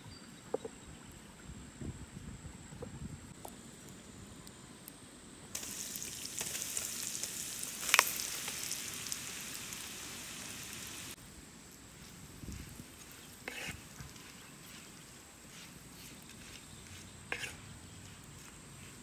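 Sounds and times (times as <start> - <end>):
chicken sizzling in hot oil: 5.6 - 11.2.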